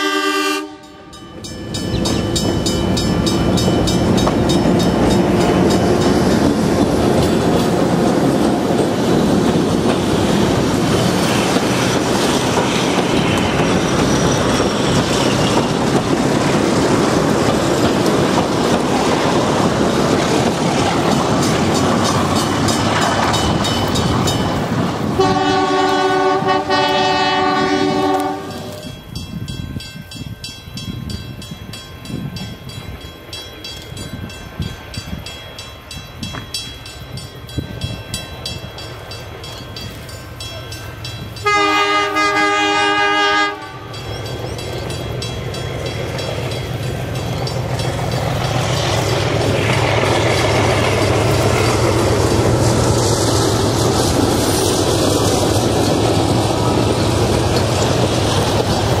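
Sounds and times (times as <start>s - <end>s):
locomotive horn chord: 0.0s - 1.3s, 25.2s - 28.8s, 41.4s - 44.0s
train wheels rumbling and clattering: 1.2s - 59.0s.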